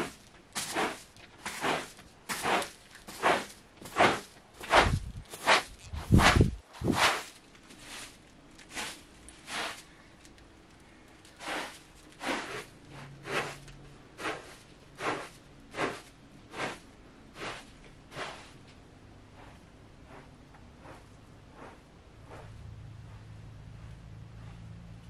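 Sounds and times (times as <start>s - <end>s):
broom sweeping carpet: 0.0s - 10.0s, 11.3s - 23.4s.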